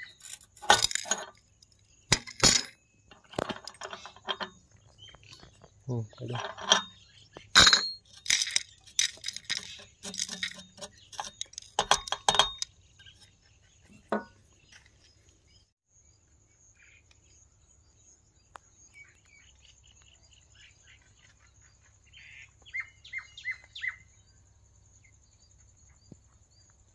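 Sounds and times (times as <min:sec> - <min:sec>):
metal grinder parts clattering: 0:00.0 - 0:04.6, 0:06.1 - 0:13.3, 0:13.9 - 0:14.4
bird chirping: 0:01.1 - 0:26.9.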